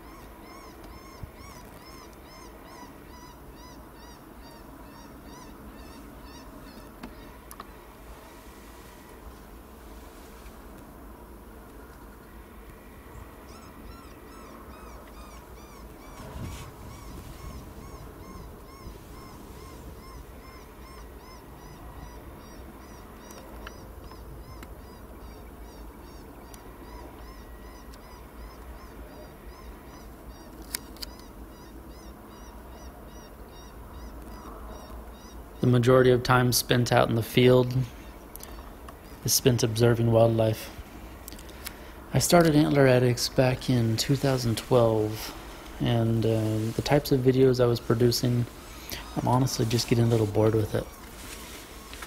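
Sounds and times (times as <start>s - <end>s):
faint clicks: 6.7s - 7.7s
electronic predator caller calls: 13.5s - 30.6s.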